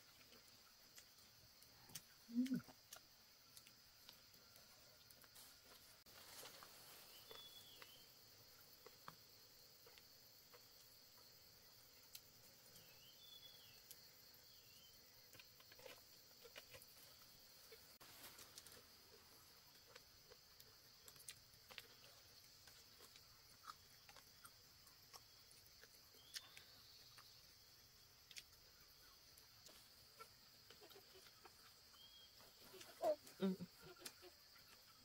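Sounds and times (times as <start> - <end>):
faint insect buzz: 0.0 - 24.5.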